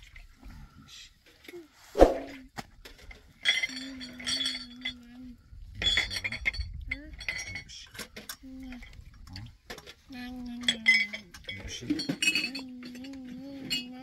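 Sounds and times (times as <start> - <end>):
short rising calls: 2.0 - 2.4
dishes and utensils clinking: 3.3 - 5.1, 5.8 - 9.0, 9.7 - 14.0.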